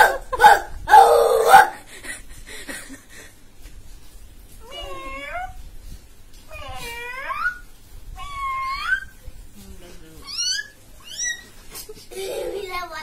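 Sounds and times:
boy imitating cat meows: 0:04.6 - 0:05.6, 0:06.5 - 0:09.2.

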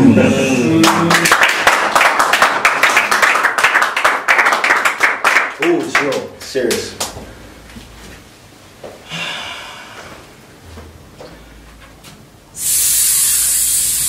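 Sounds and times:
loud high hiss: 0:12.5 - 0:14.0.

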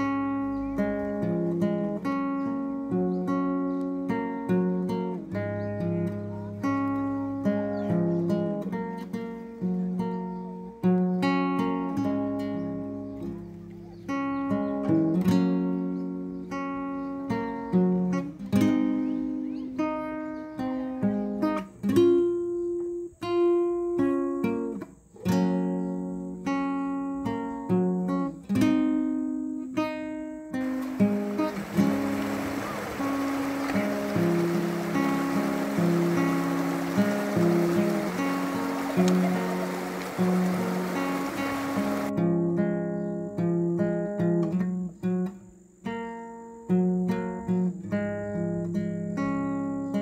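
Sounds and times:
acoustic guitar chords: 0:00.0 - 0:50.0
acoustic guitar plucked chords: 0:25.3 - 0:45.2.

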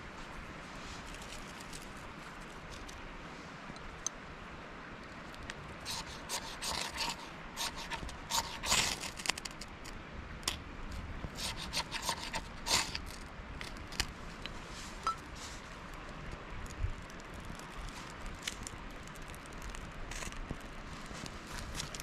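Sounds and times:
campfire crackling: 0:05.0 - 0:10.6, 0:11.3 - 0:22.0.

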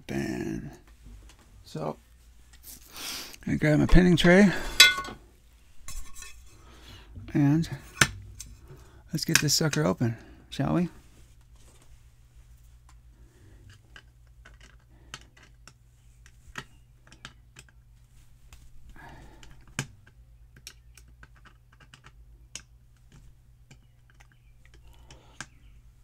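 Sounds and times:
lock pick clicking and scraping: 0:20.6 - 0:22.6.

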